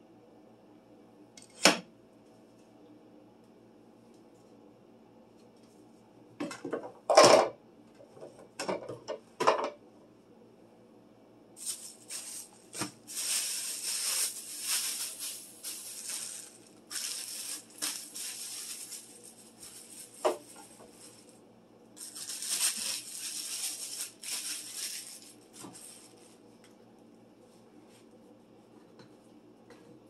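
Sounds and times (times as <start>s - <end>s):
plastic rustling and crinkling: 11.6s - 21.4s, 22.0s - 26.5s.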